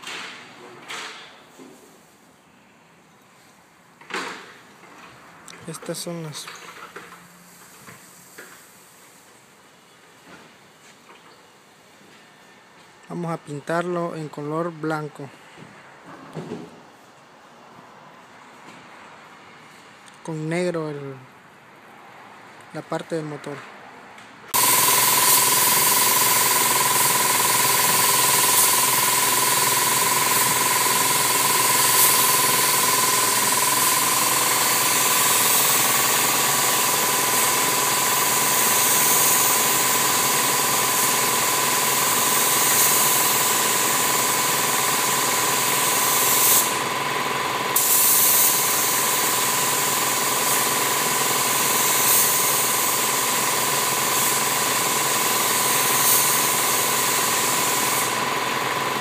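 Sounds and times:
paint spray gun hissing: 24.6s - 59.0s.

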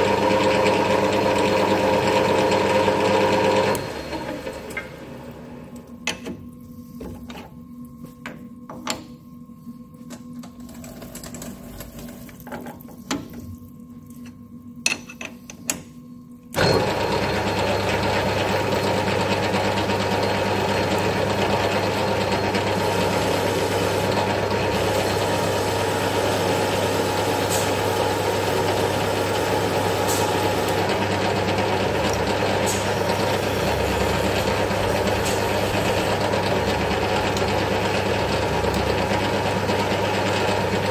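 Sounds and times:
metal lathe humming: 16.6s - 40.9s.

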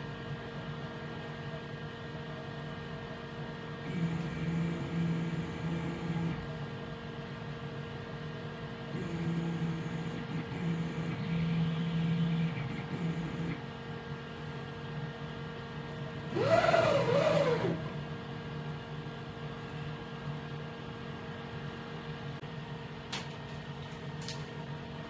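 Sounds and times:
low motor whine: 0.0s - 25.0s
steady machine hum: 0.0s - 25.0s
lathe axis motors moving: 8.9s - 13.6s, 15.9s - 18.6s
rapid traverse motor: 16.2s - 18.2s.

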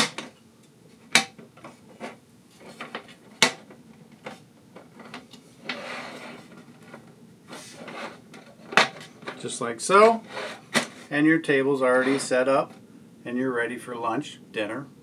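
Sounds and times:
metal sliding rub: 5.0s - 11.2s, 11.8s - 12.7s.

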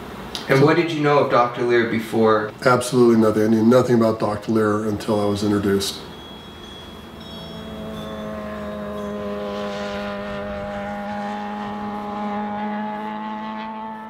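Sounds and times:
electronic drone pad: 4.4s - 14.0s.

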